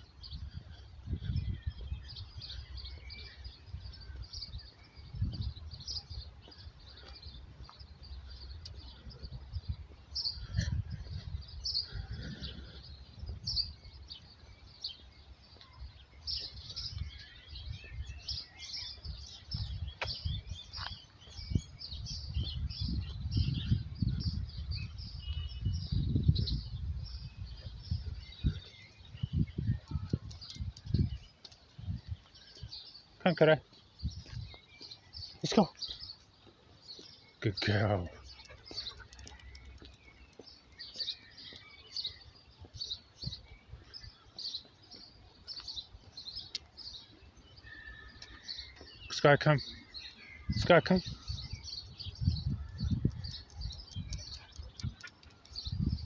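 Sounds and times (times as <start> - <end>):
small birds chirping: 0.0 - 56.0
low rumble on microphone: 21.3 - 32.2.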